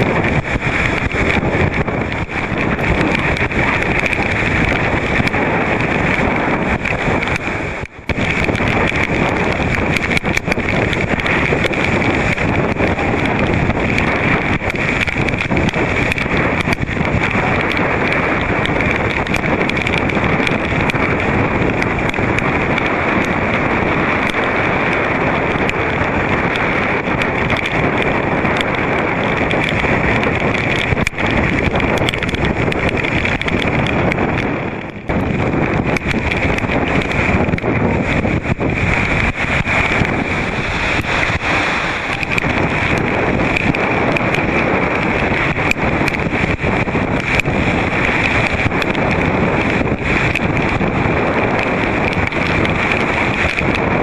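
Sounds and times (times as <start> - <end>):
choppy lake waves: 0.0 - 54.0
strong wind blasting microphone: 0.0 - 54.0.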